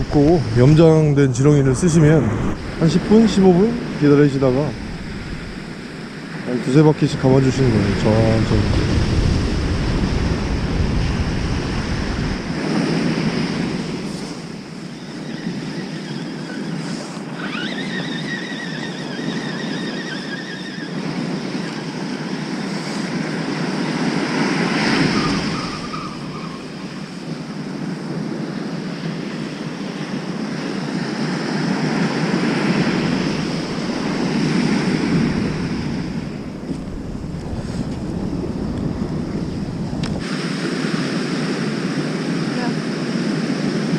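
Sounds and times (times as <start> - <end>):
thin high whine: 0.0 - 8.6
surf breaking on beach: 0.0 - 19.7, 20.9 - 43.9
wind buffeting microphone: 0.0 - 43.9.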